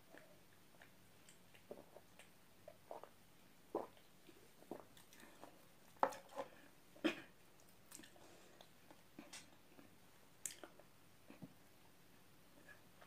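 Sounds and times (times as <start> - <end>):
chewing and swallowing: 0.0 - 6.3.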